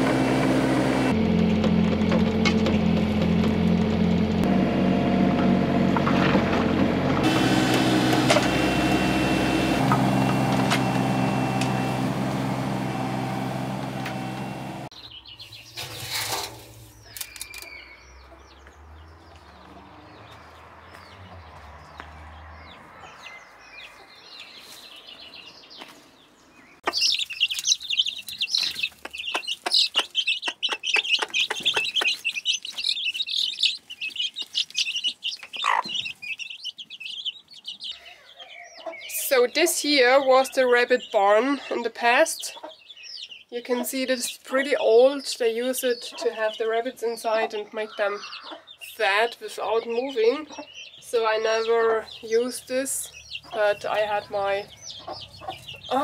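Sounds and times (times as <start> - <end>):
excavator engine running: 0.0 - 14.9, 51.2 - 56.0
chicks cheeping loudly: 7.3 - 16.1, 16.8 - 56.0.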